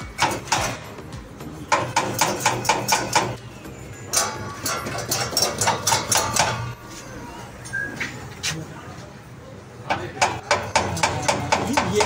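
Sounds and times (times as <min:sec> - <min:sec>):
hammer knocking: 0:01.7 - 0:03.4, 0:09.9 - 0:12.0.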